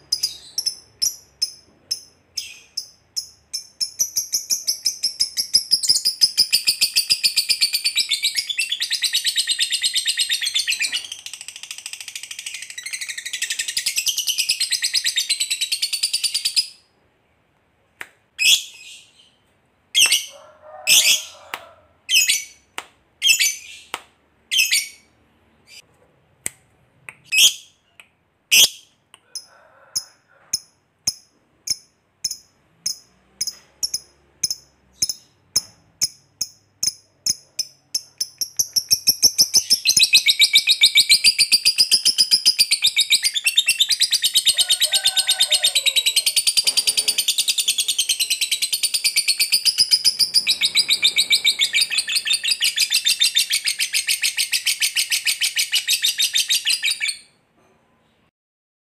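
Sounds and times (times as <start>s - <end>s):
bird rapid high-pitched trill: 0.0s - 16.7s, 46.4s - 57.3s
bird sharp chirps: 46.5s - 57.4s.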